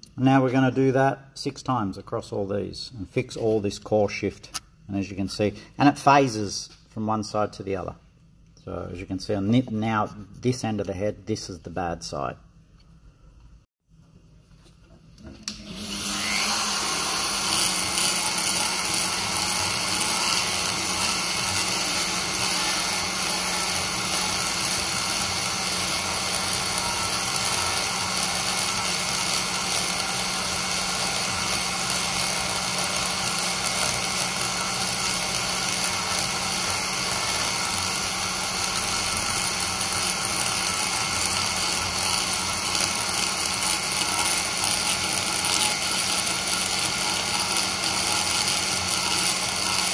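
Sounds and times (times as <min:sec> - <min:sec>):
die grinder whining: 0:15.4 - 0:49.9.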